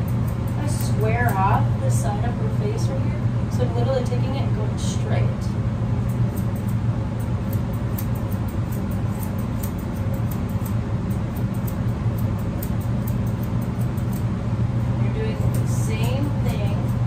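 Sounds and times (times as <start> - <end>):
shears snipping: 0.0 - 1.7, 6.0 - 17.0
steady low hum: 0.0 - 17.0.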